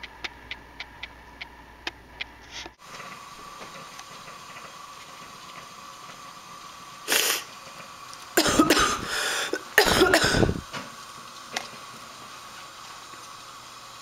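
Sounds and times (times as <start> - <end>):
person sneezing: 7.1 - 7.5, 8.4 - 10.6
person breathing in sharply: 9.0 - 9.6.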